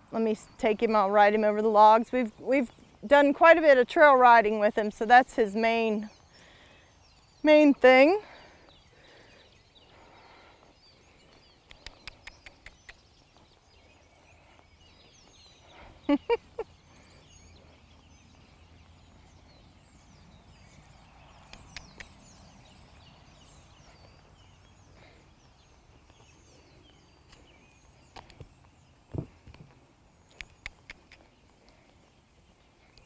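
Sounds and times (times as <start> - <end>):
faint bird chirps: 6.1 - 33.0
quick run of clicks: 11.6 - 13.0, 30.3 - 31.3.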